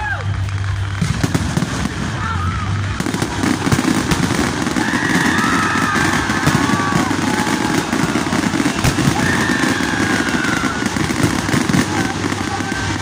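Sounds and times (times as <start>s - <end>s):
fireworks crackling and popping: 0.0s - 13.0s
high whistling fireworks: 0.0s - 13.0s.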